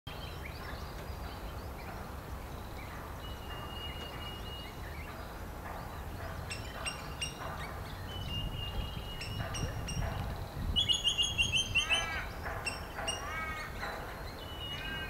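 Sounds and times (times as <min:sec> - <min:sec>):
sharp ringing bird calls: 0:00.1 - 0:15.0
long steady bird whistle: 0:02.7 - 0:05.3, 0:06.0 - 0:13.3, 0:14.1 - 0:15.0
birds chirping and calling: 0:02.7 - 0:15.0.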